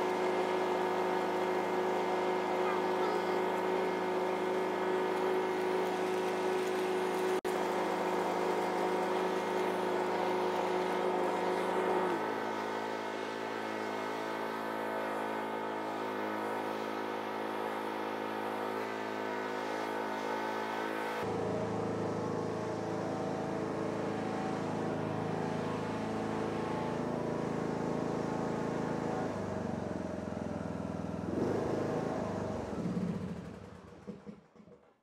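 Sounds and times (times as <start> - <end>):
riding mower engine running: 0.0 - 35.0.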